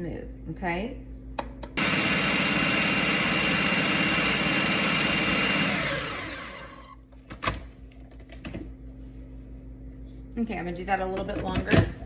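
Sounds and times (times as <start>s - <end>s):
food processor motor whining: 1.8s - 7.0s.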